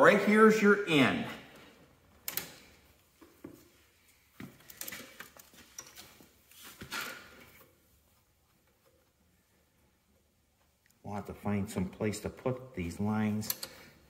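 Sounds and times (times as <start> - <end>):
rubber hoses rustling: 1.6 - 10.8
metal hose fittings clicking: 13.4 - 13.9.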